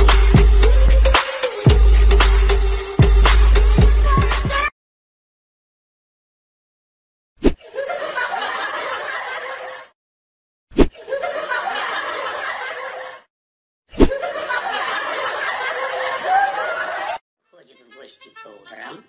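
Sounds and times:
people laughing: 0:07.6 - 0:10.0, 0:10.9 - 0:13.3, 0:14.0 - 0:17.2.

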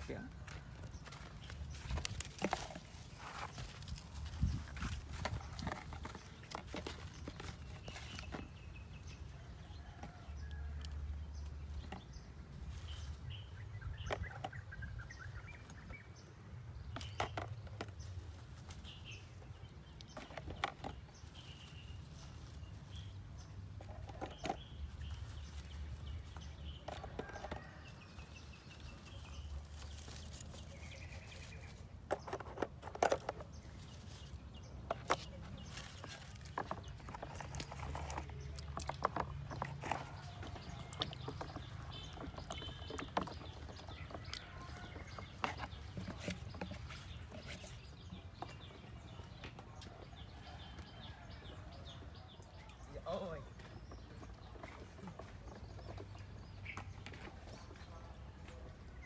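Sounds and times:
rustling in dry leaves: 0:00.0 - 0:10.8, 0:12.4 - 0:13.8, 0:18.0 - 0:20.3, 0:21.0 - 0:49.3.

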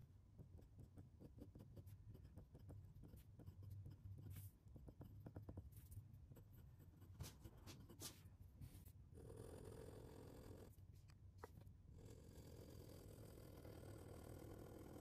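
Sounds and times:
pen nib scratching on paper: 0:00.4 - 0:08.2.

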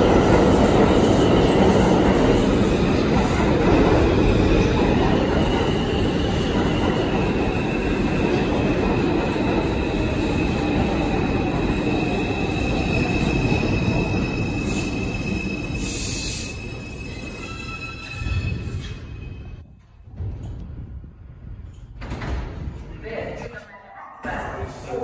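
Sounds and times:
subway train rumbling: 0:00.0 - 0:25.0
high wheel squeal: 0:12.0 - 0:19.4.

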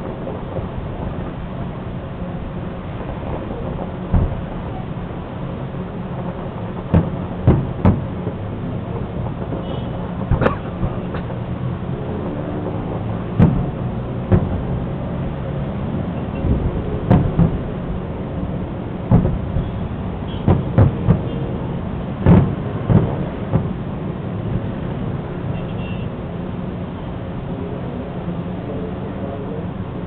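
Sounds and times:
fireworks booming: 0:00.0 - 0:30.0.

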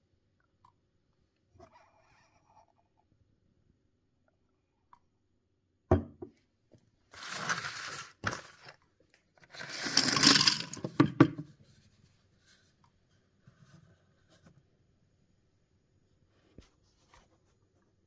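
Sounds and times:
knock on cardboard: 0:05.9 - 0:06.3
paper crinkling and tearing: 0:07.1 - 0:08.8.

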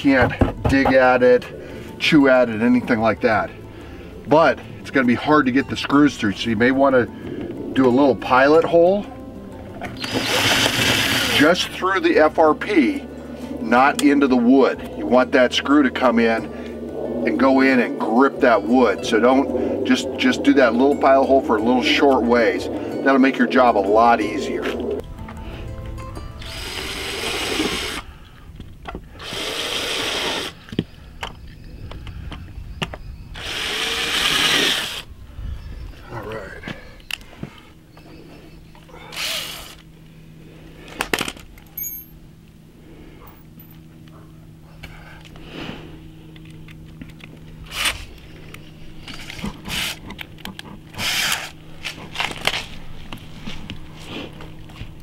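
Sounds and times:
cordless drill whining: 0:09.8 - 0:11.7, 0:26.4 - 0:28.2, 0:29.0 - 0:31.4, 0:32.3 - 0:35.1, 0:38.9 - 0:40.0, 0:49.0 - 0:51.6.

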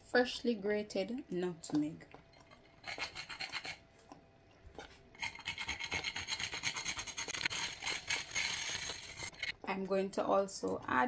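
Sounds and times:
nutmeg grated on metal grater: 0:02.8 - 0:03.8, 0:05.2 - 0:09.6.

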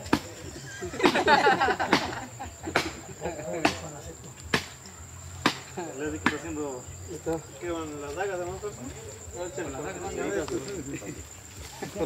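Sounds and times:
high insect trill: 0:00.0 - 0:12.0
sharp chopping blows: 0:01.0 - 0:03.0, 0:04.5 - 0:04.8, 0:05.4 - 0:06.5.

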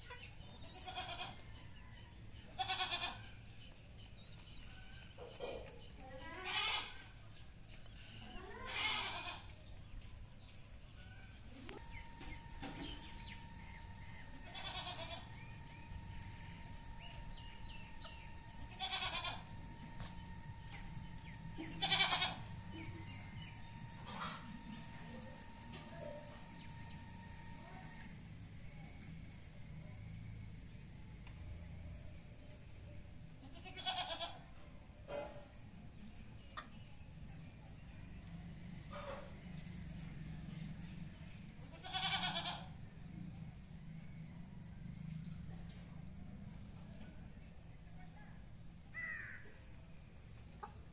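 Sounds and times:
farm animal calling: 0:00.0 - 0:03.8, 0:04.6 - 0:10.0, 0:10.8 - 0:28.2, 0:33.4 - 0:35.2, 0:41.6 - 0:42.9
steady high hum: 0:10.1 - 0:33.2.

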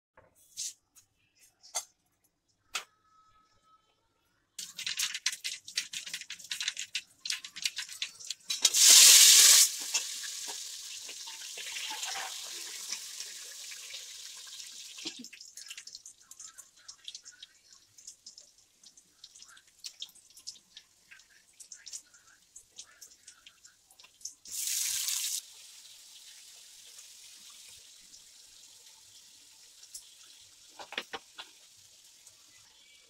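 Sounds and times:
vegetables sizzling in oil: 0:07.5 - 0:15.3, 0:24.5 - 0:33.0.

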